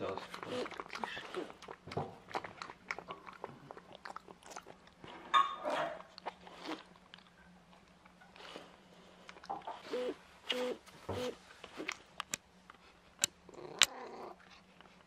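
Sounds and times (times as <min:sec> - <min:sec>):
cat crunching food: 0:00.0 - 0:05.2.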